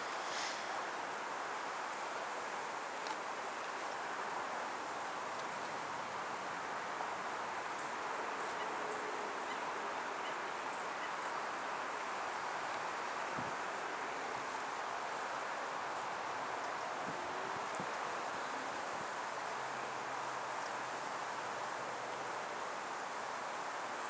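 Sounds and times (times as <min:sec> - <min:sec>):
insects chirping in grass: 0:00.0 - 0:24.0.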